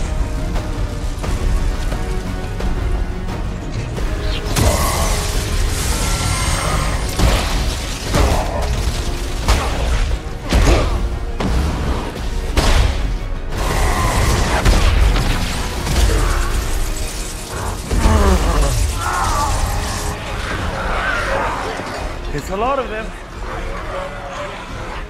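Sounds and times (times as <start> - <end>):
dramatic orchestral score: 0.0 - 25.0
crackling electric bolts: 4.1 - 10.5, 12.9 - 22.0.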